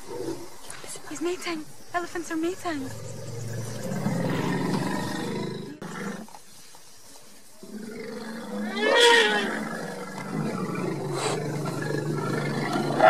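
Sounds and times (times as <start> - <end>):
lion growling and roaring: 2.9 - 6.3, 7.6 - 13.0.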